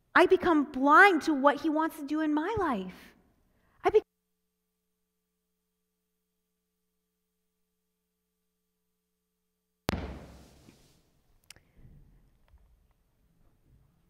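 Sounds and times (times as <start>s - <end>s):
heavy thump: 9.9s - 10.8s.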